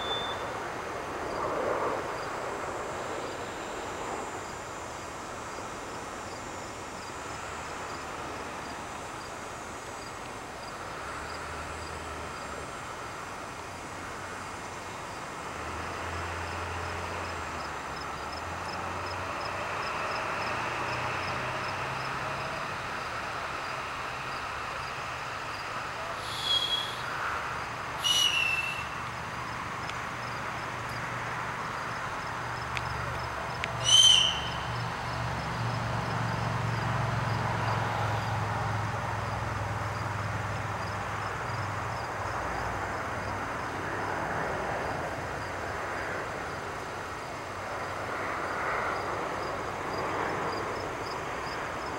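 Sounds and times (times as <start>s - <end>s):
short high chirps: 0.0s - 0.5s, 28.0s - 28.9s
distant engine drone: 0.0s - 51.9s.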